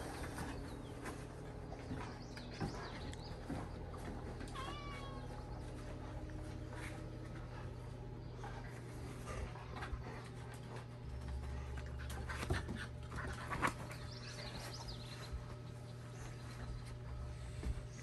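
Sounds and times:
paws scuffling and knocking: 0.0s - 18.0s
puppy whining: 4.3s - 5.9s.

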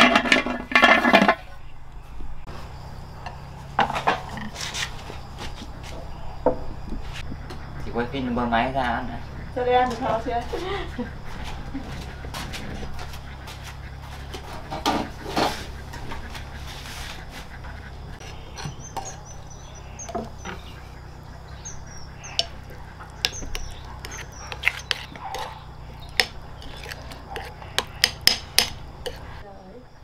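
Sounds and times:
metal spoon scraping ceramic bowl: 21.8s - 29.4s.

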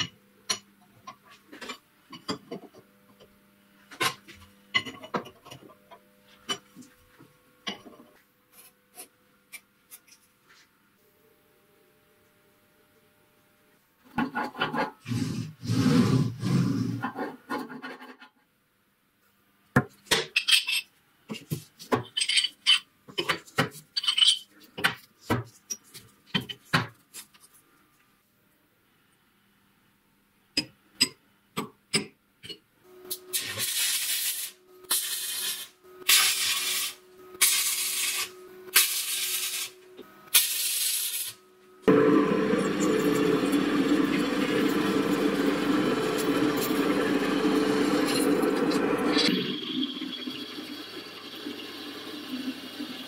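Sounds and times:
power tool grinding steel: 41.9s - 50.6s.

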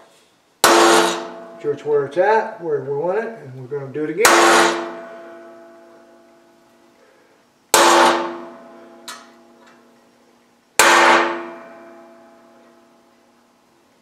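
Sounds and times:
hammer striking punch on steel: 0.6s - 1.8s, 4.2s - 5.6s, 7.8s - 9.3s, 10.8s - 12.1s.

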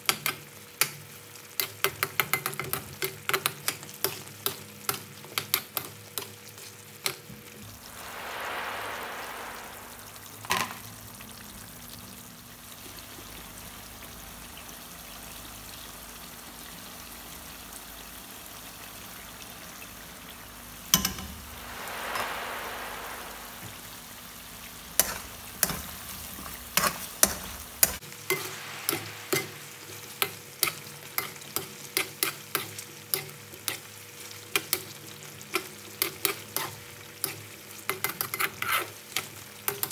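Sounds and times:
curry sizzling in a pan: 0.0s - 39.9s
metal spoon scraping a pan: 35.6s - 39.9s.

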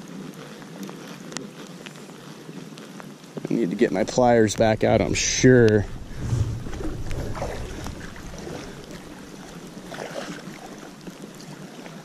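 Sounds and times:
rain falling on river: 0.0s - 12.0s
wind buffeting microphone: 3.8s - 11.2s.

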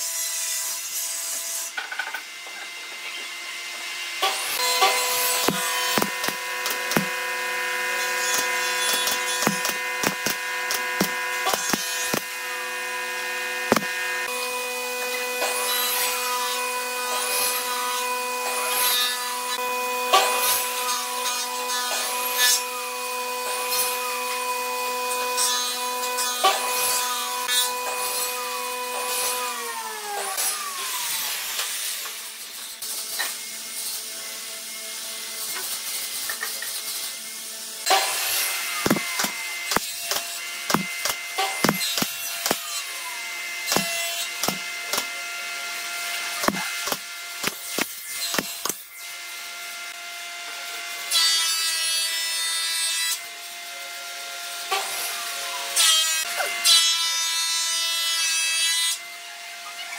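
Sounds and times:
brad nailer firing: 4.2s - 14.3s, 37.9s - 42.8s, 43.6s - 45.1s, 46.4s - 48.8s
motor humming: 4.5s - 7.7s, 8.3s - 14.3s, 38.8s - 42.7s, 43.7s - 45.1s.

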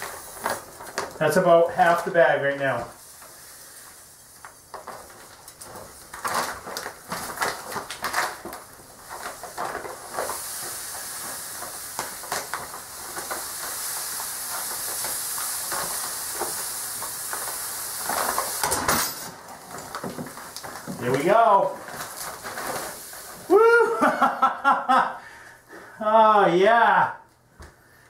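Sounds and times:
sand pouring into tub: 0.0s - 25.0s.

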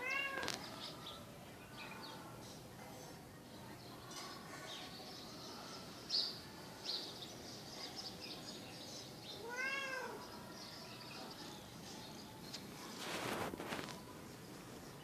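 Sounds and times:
cat meowing: 0.0s - 0.5s, 9.4s - 10.2s.

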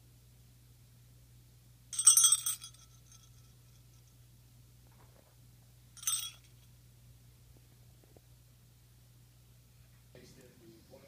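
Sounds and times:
dog collar tags jingling: 2.0s - 3.5s, 6.0s - 6.5s.

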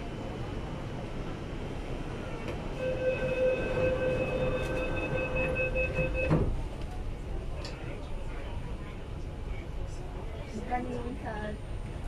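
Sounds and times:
train hum: 0.0s - 12.0s
rapid door warning beeping: 2.8s - 6.4s.

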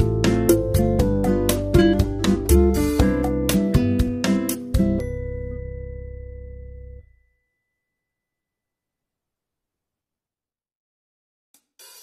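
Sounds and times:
strummed guitar chords: 0.0s - 5.8s.

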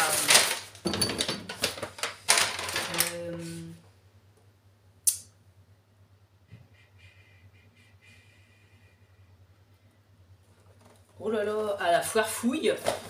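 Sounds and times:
rustling handling noise: 0.0s - 3.7s
faint room hum: 0.0s - 13.0s
sharp click: 5.0s - 5.3s.

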